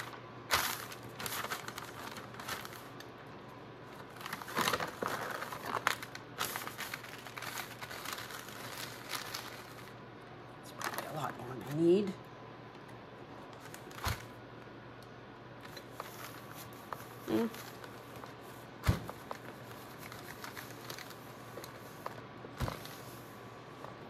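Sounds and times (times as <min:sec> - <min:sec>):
paper rustling: 0:00.0 - 0:03.1, 0:03.9 - 0:10.0, 0:15.6 - 0:24.0.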